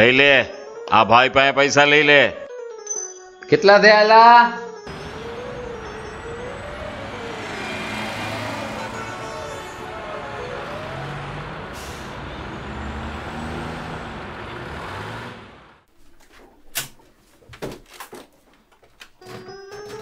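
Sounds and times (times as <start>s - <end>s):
road traffic passing: 4.9s - 15.9s.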